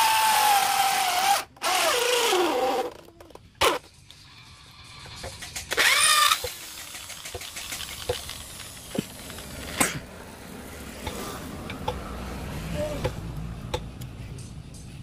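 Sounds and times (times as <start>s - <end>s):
electric drill boring into wood: 0.0s - 3.0s, 5.7s - 7.5s.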